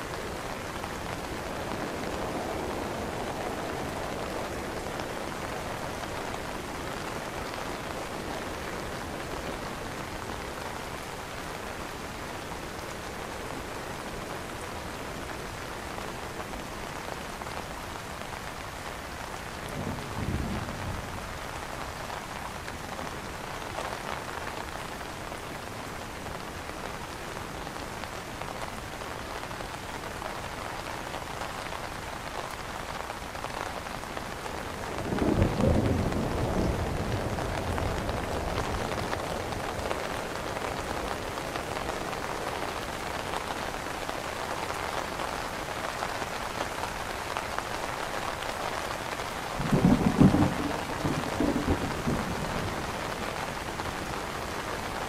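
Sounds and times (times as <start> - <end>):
rain on an umbrella: 0.0 - 55.0
thunder rolling: 49.6 - 52.6.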